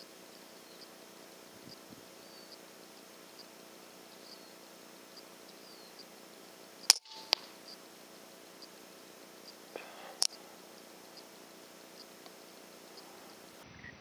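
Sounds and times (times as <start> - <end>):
faint high chirp: 0.0 - 1.0, 1.6 - 6.2, 6.8 - 7.9
pellet impact smack: 6.9 - 7.5
air rifle shot crack: 6.9 - 7.6.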